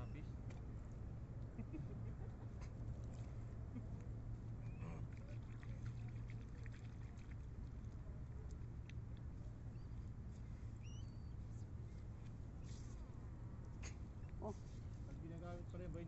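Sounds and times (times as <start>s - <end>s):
seawater lapping among rocks: 2.7s - 13.2s.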